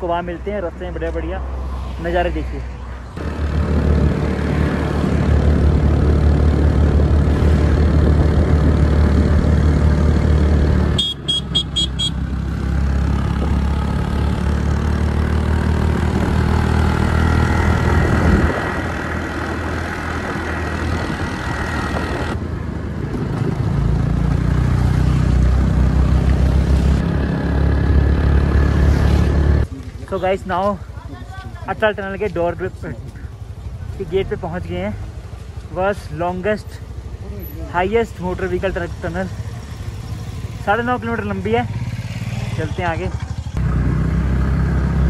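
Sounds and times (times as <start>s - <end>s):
wind and road rumble: 0.0s - 45.0s
vehicle horn tooting: 11.0s - 12.2s.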